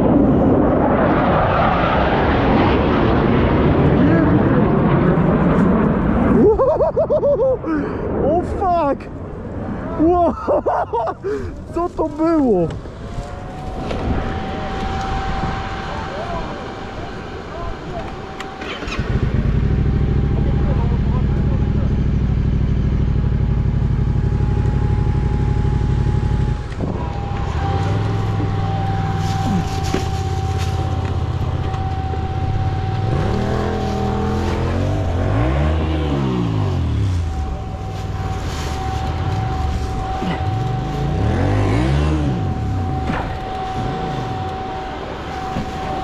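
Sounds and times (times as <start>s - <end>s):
thin steady whine: 10.2s - 46.0s
motorcycle engine revving: 13.4s - 46.0s.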